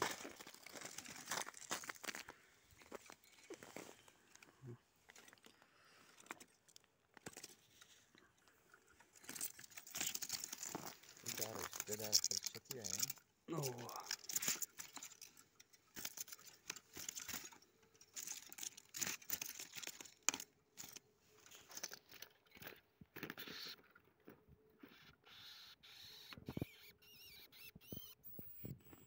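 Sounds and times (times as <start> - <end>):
bird squeaks: 22.5 - 23.8, 24.8 - 29.0.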